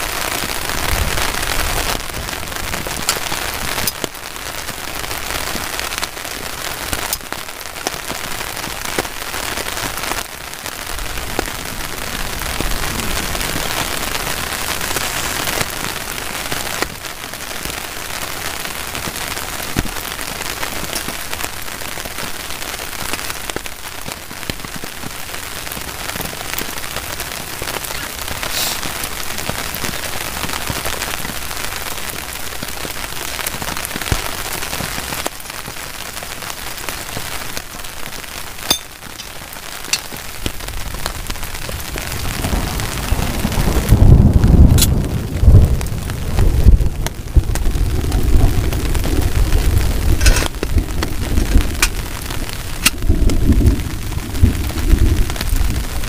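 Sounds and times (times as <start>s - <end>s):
heavy rain on tarp: 0.0s - 56.0s.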